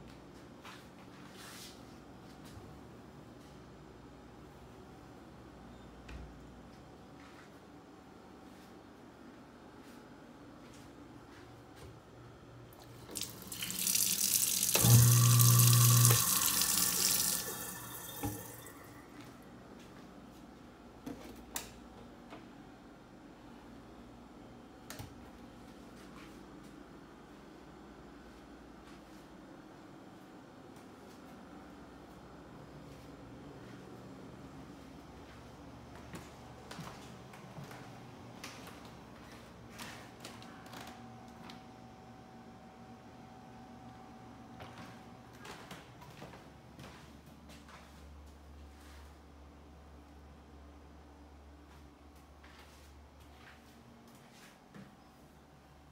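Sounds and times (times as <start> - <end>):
low steady hum: 2.2 - 54.2
faucet running into a steel sink: 13.1 - 19.0
footsteps on hardwood floor: 44.6 - 48.0.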